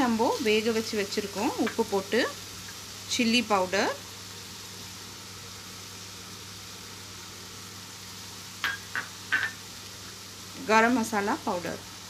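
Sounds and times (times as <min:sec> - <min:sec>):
meat sizzling in a pan: 0:00.0 - 0:12.0.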